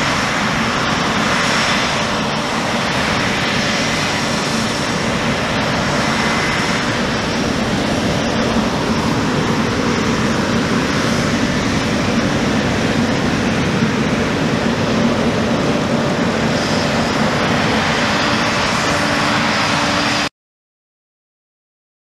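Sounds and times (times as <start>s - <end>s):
combine harvester droning: 0.0s - 20.3s.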